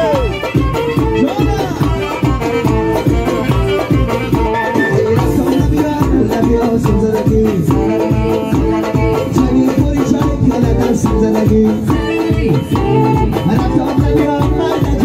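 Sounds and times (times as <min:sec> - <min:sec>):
electronic keyboard tune: 0:00.0 - 0:15.0
person singing: 0:04.3 - 0:15.0.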